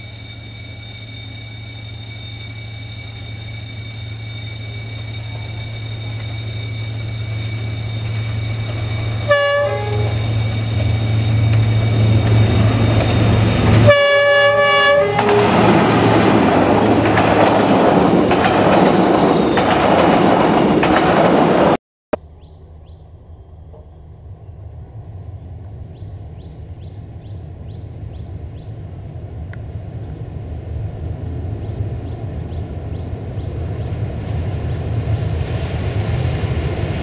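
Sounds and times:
locomotive engine droning: 0.0 - 21.1, 22.2 - 37.0
train clattering on rails: 0.0 - 21.8
train horn blasts: 9.2 - 10.3, 13.3 - 16.2.

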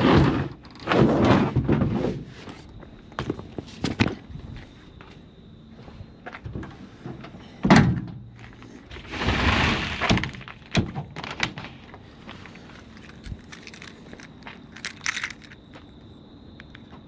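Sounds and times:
tailgate heavy thunk: 7.6 - 8.2.

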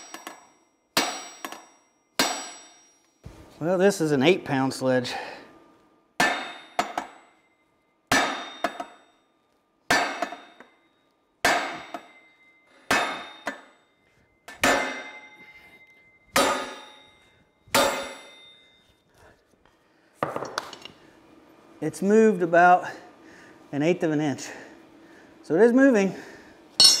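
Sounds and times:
sledgehammer striking metal: 0.0 - 3.0, 6.2 - 7.4, 8.1 - 9.1, 9.9 - 10.8, 11.4 - 13.8, 14.4 - 18.6, 26.8 - 27.0.

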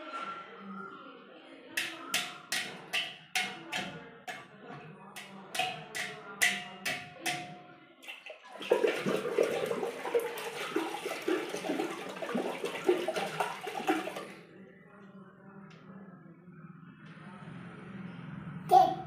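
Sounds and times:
taps on steel pot: 1.8 - 4.5, 5.2 - 7.7
water sloshing in a pot: 1.8 - 14.5.

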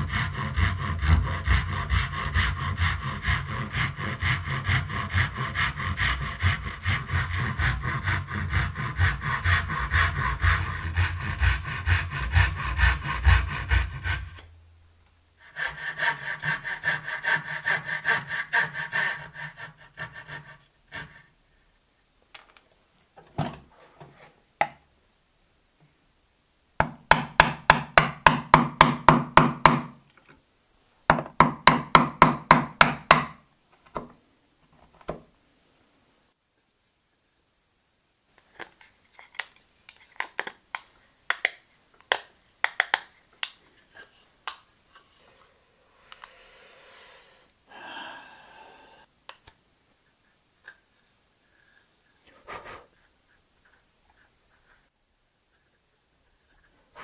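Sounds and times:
handsaw cutting wood: 0.0 - 14.5, 15.4 - 21.3.

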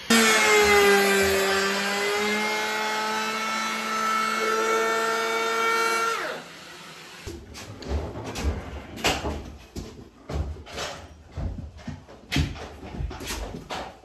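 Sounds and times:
handling knocks and clatter: 7.3 - 14.0.

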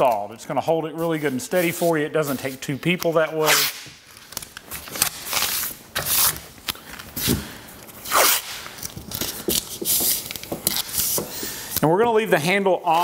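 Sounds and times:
masking tape pulled off roll: 3.4 - 11.8
tape rubbed down by hand: 4.9 - 6.5, 8.0 - 8.8.

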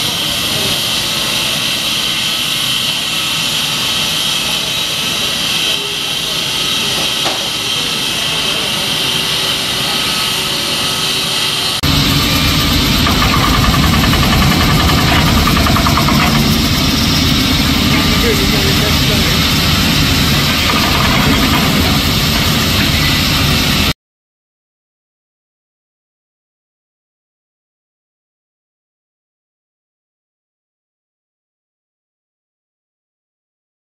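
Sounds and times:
diamond saw cutting steel: 0.0 - 23.9
heavy diesel machinery running: 0.0 - 24.0.

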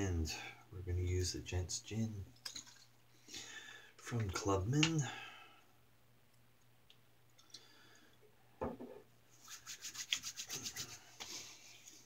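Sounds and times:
soft knock: 8.6 - 9.0
palms rubbing together: 9.3 - 12.0.

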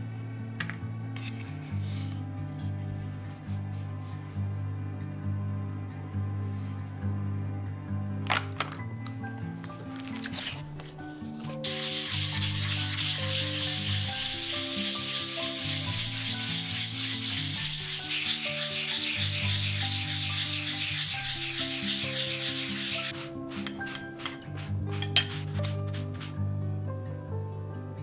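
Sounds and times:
sandpaper scratching wood: 11.6 - 26.3.

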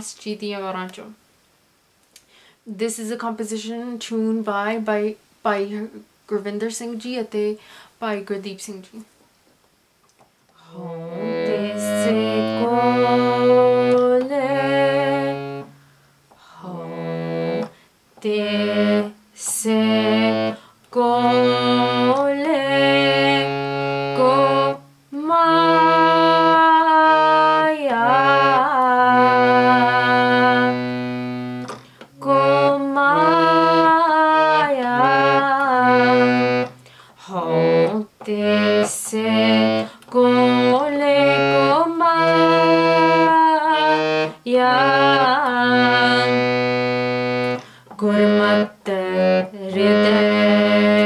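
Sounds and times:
woman singing: 10.6 - 15.7, 16.4 - 31.2, 32.1 - 51.0
harmonium melody: 10.7 - 15.8, 16.7 - 51.0.

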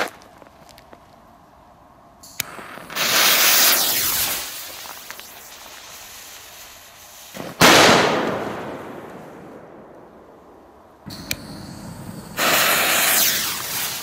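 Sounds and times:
firecracker bang: 7.3 - 9.9, 11.1 - 14.0
fuse hissing: 11.1 - 14.0.

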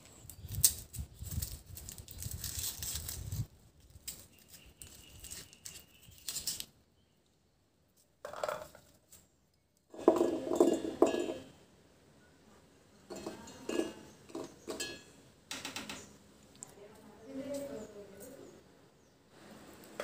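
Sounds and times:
shallots clattering into metal jar: 9.9 - 11.5, 13.1 - 15.1.

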